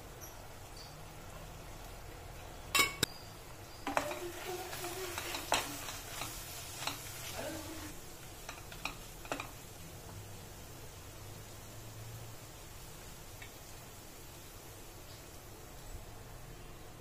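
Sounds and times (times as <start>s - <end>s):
wooden spatula scraping metal pot: 3.8s - 9.6s.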